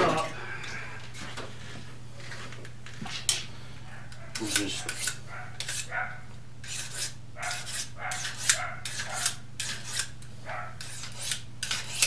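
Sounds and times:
knife scraping on sharpening steel: 4.3s - 5.9s, 6.6s - 10.2s, 10.8s - 12.0s.

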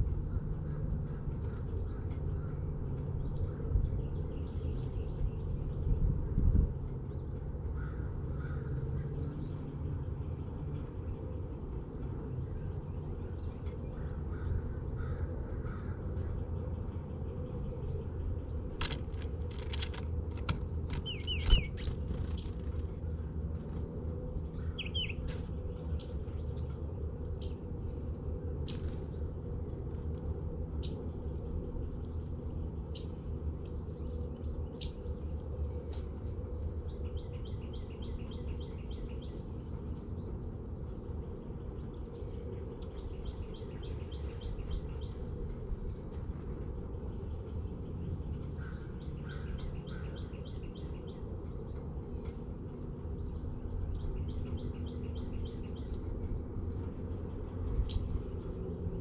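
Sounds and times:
low background rumble: 0.0s - 59.0s
wild birds chirping and calling: 12.7s - 23.2s, 23.8s - 26.8s, 41.6s - 59.0s.

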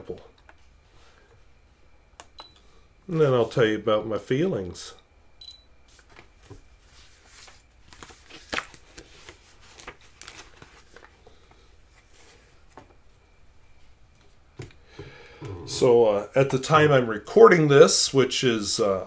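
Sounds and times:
rustling of objects and paper: 5.9s - 13.3s.

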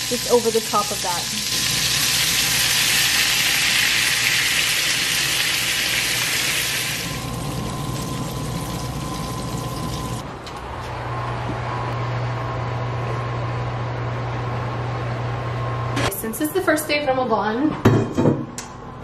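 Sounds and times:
meatballs sizzling in a pan: 0.0s - 10.2s.

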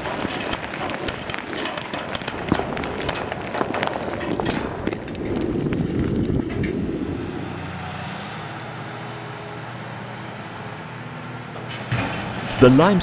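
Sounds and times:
rock debris rumbling and clattering: 0.0s - 7.5s
wheel loader diesel engine running: 0.0s - 13.0s.

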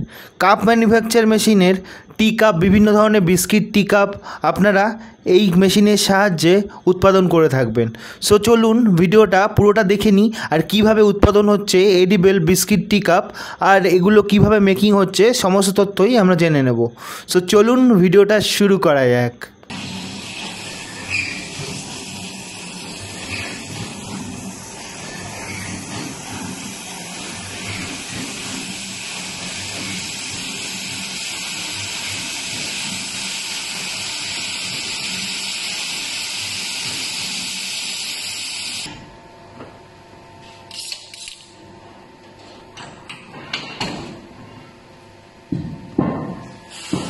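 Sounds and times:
faint hum: 0.0s - 9.0s
machine hissing loudly: 19.7s - 38.9s, 46.7s - 47.0s.

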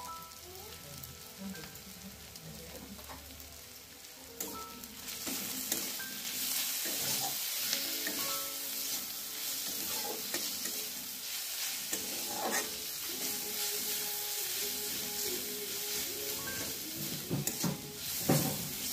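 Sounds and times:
onions sizzling in oil: 0.0s - 18.9s
metal spatula scraping pan: 9.0s - 11.0s, 11.6s - 13.4s.

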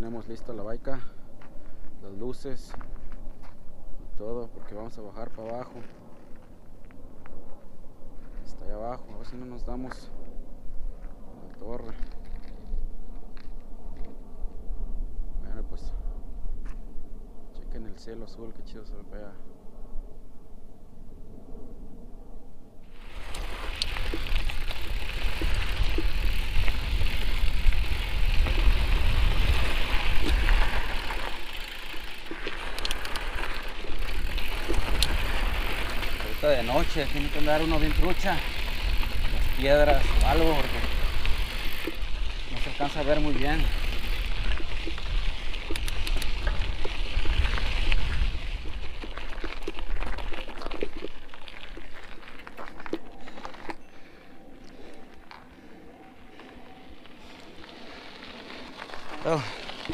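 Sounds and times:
wind rumble on microphone: 0.0s - 53.7s
bike rattling: 22.9s - 53.8s, 56.2s - 59.9s
tyres crunching on dirt: 22.9s - 53.8s, 56.4s - 59.9s
small stones clicking: 30.0s - 36.4s.

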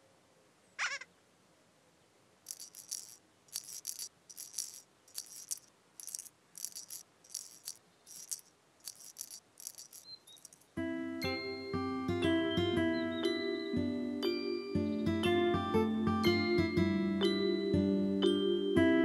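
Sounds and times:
shaker rattling: 2.5s - 10.8s.

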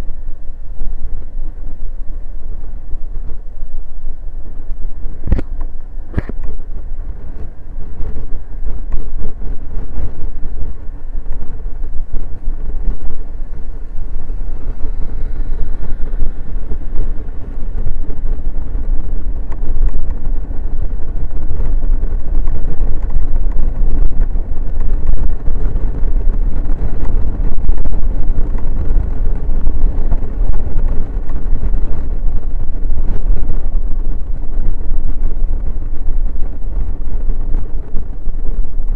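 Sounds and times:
wind buffeting microphone: 0.0s - 38.9s
scooter engine running: 5.1s - 32.3s.

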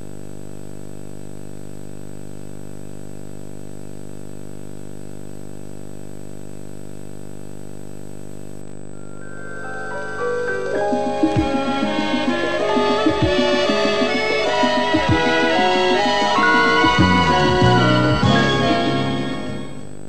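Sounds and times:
electrical buzz-hum: 0.0s - 20.0s
tape hiss: 0.0s - 20.0s
thin high whine: 8.2s - 20.0s.

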